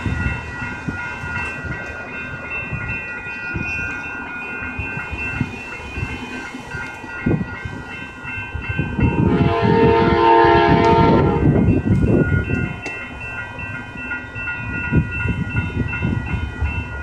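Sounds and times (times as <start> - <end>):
train rumble: 0.0 - 17.0
warning bells ringing: 0.0 - 17.0
locomotive air horn: 9.2 - 11.6.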